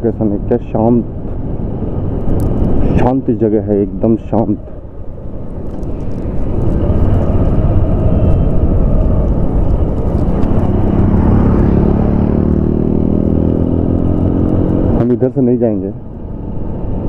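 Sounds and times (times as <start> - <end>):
motorcycle engine rumbling: 3.9 - 17.0.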